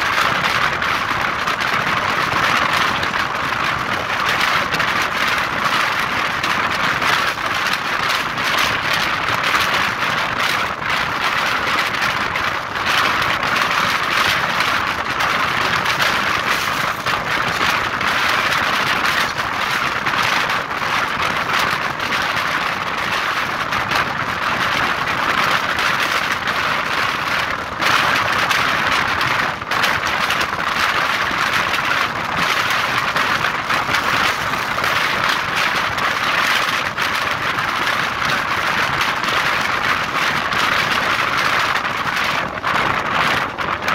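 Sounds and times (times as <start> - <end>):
wind: 0.0 - 43.9
train rushing on rails: 11.9 - 20.0, 32.0 - 36.3.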